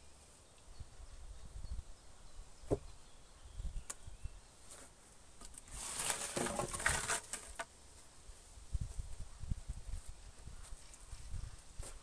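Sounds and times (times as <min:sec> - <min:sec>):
scraping and rustling of leaves: 0:04.6 - 0:12.0.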